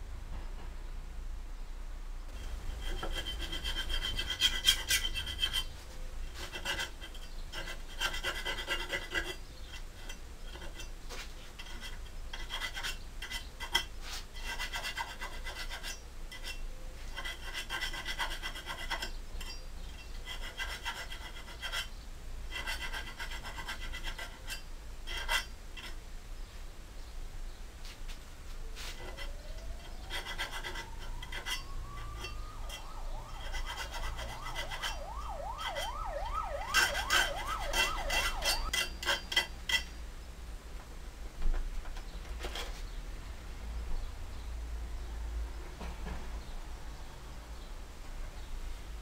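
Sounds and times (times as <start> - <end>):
hand file scraping steel: 2.3 - 26.0, 28.8 - 40.0.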